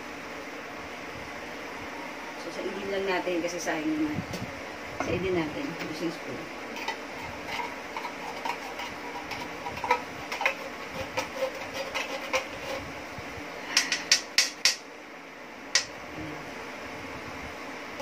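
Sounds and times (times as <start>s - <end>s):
metal spoon scraping a can: 6.7s - 12.8s.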